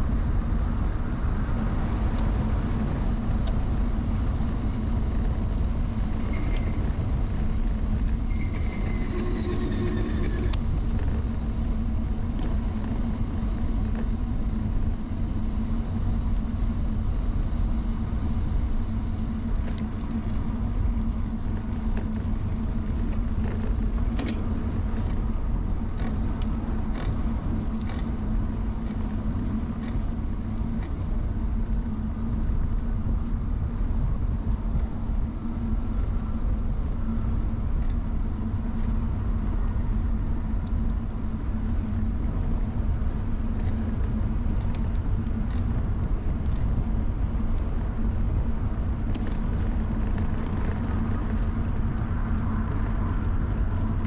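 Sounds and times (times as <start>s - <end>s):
bicycle tyre and road noise: 0.0s - 54.0s
wind noise: 0.0s - 54.0s
bicycle clicks and rattles: 17.6s - 33.8s, 37.7s - 54.0s.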